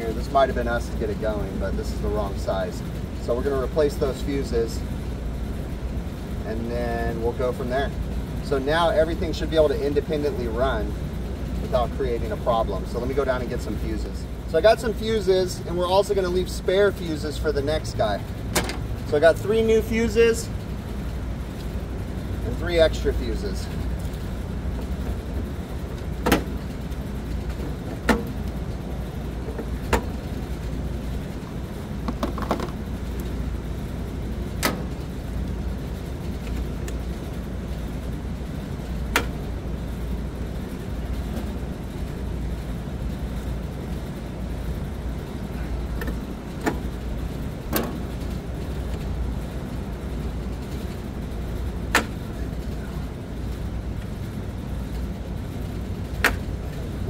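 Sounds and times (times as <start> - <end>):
steady low rumble: 0.0 - 57.0.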